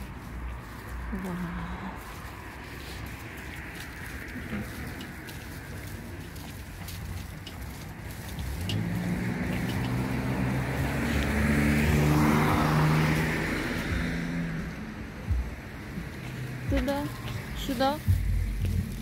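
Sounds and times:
tyre noise: 0.0s - 19.0s
car engine accelerating: 5.6s - 19.0s.

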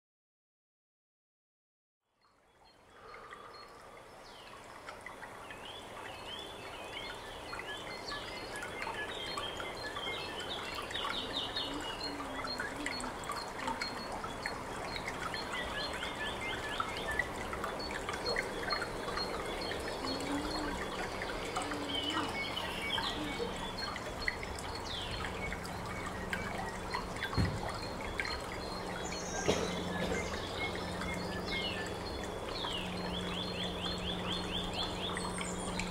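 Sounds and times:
water trickling and dripping: 2.2s - 35.9s
low steady hum: 2.4s - 35.9s
bird-like chirps: 5.7s - 35.9s.

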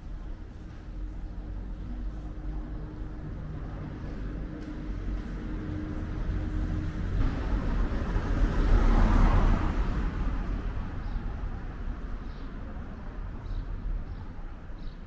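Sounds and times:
car driving past: 6.0s - 11.9s.

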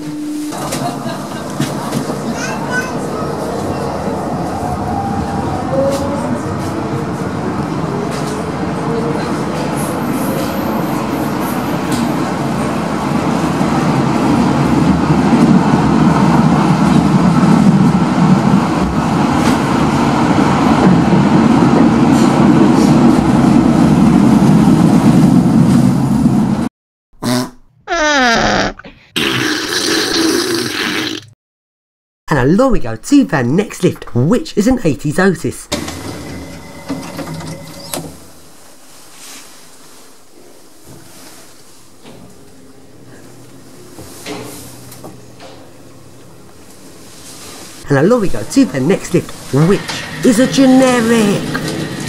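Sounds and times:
underground train running: 0.0s - 26.7s, 35.6s - 52.0s
fart sounds sliding in pitch: 27.2s - 31.3s.

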